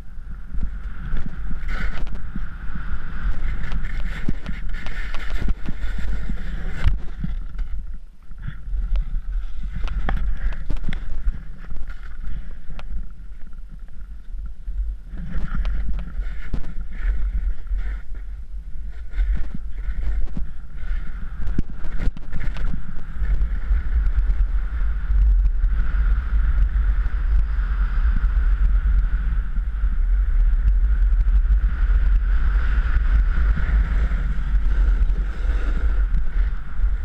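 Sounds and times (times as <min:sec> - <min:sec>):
wind buffeting microphone: 0:00.0 - 0:37.0
snowboard scraping over snow: 0:00.2 - 0:13.9, 0:14.6 - 0:37.0.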